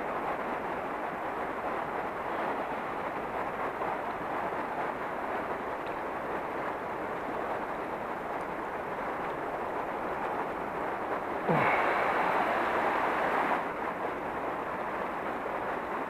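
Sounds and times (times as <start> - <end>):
river current rushing: 7.9 - 16.0.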